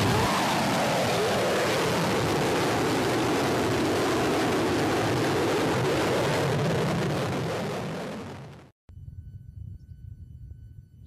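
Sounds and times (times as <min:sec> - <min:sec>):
steady rushing roar: 0:00.0 - 0:08.7.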